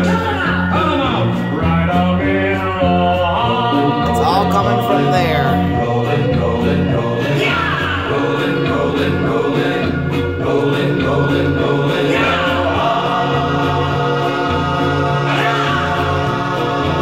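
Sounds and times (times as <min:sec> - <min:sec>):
music with singing: 0:00.0 - 0:17.0
prominent bass line: 0:04.0 - 0:06.0.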